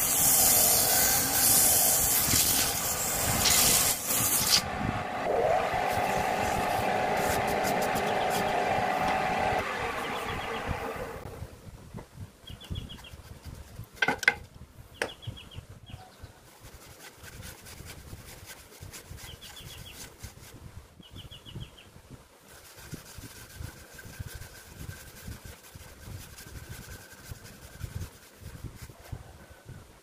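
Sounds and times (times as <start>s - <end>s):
sandpaper rubbing on wood: 0.0s - 4.6s, 16.5s - 20.6s, 22.5s - 29.1s
faint machine whine: 2.8s - 11.6s
bird chirping: 9.8s - 11.0s, 12.4s - 13.2s, 14.9s - 16.4s.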